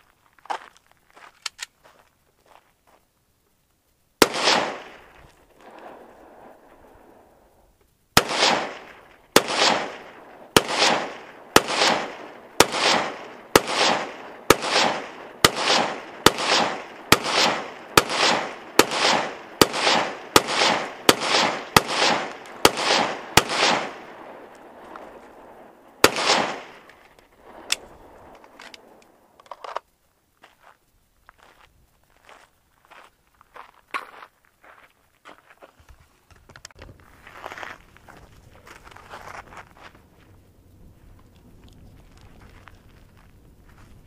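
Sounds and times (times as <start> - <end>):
rifle shots with echo: 4.2 - 7.5, 8.2 - 29.4.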